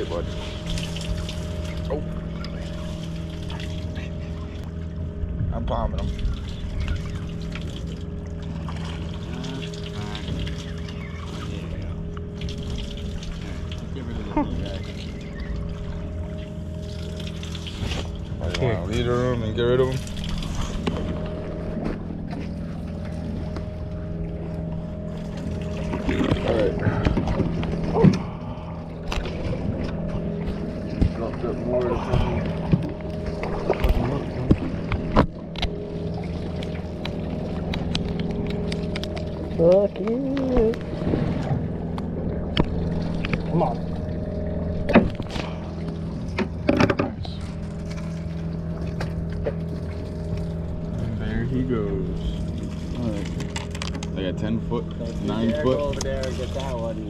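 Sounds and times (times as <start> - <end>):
boat engine idling: 0.0 - 57.0
water splashes and knocks: 5.4 - 14.0, 16.8 - 18.8, 19.8 - 23.8, 25.1 - 28.4, 29.0 - 51.0, 52.3 - 57.0.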